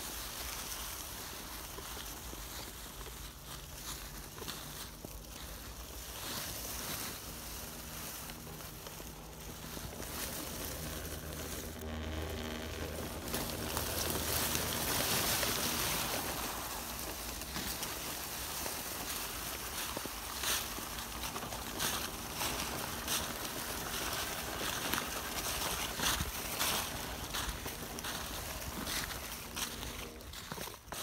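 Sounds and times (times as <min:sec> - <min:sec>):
dry leaves rustling under tyres: 0:00.0 - 0:31.0
toy truck motor whine: 0:08.8 - 0:30.6.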